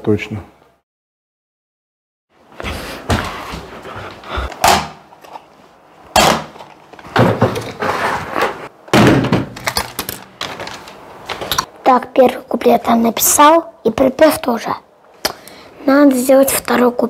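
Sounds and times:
door banging: 8.9 - 10.6
plastic cassette boxes clattering: 9.5 - 11.7.

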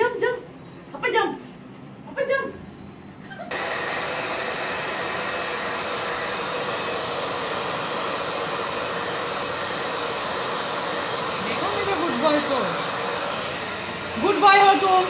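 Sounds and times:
hair dryer blowing: 3.5 - 15.0.

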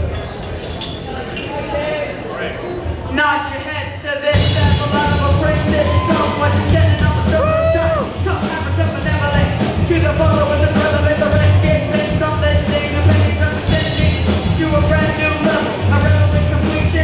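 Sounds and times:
drum kit: 4.3 - 17.0
keyboard: 4.3 - 17.0
bass guitar: 4.4 - 17.0.

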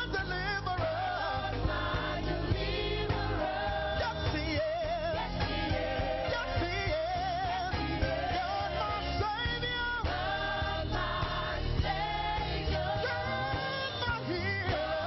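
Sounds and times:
band accompaniment: 0.0 - 15.0
mixed voices singing gospel song: 0.0 - 15.0.

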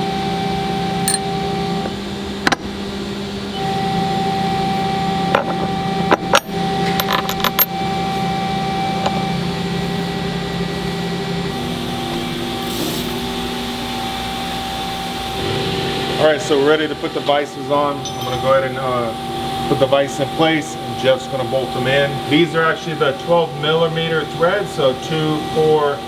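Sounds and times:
steady hum: 0.7 - 3.3
metal parts clicking and clinking: 6.2 - 7.7, 18.0 - 18.6.

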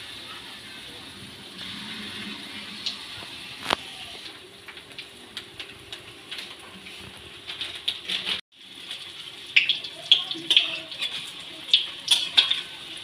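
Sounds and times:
frying in hot oil: 0.0 - 13.0.

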